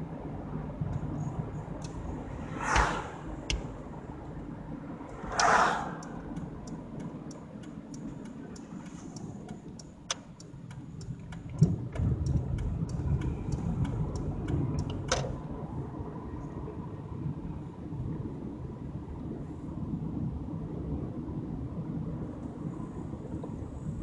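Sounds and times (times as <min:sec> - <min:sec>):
tyre and road rumble: 0:00.0 - 0:18.5
vehicle rushing past: 0:02.0 - 0:03.8, 0:05.0 - 0:06.4.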